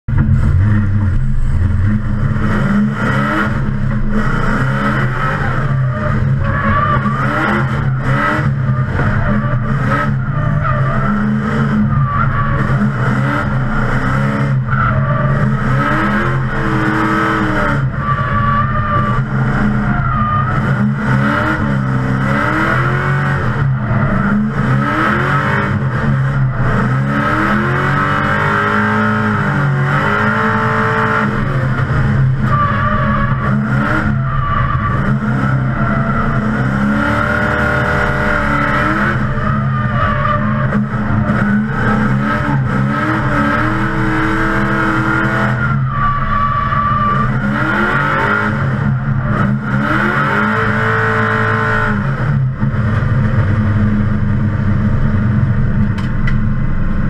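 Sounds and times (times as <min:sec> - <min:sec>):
car engine revving: 0:00.0 - 0:57.0
tyre squeal: 0:04.7 - 0:22.8, 0:29.9 - 0:51.7.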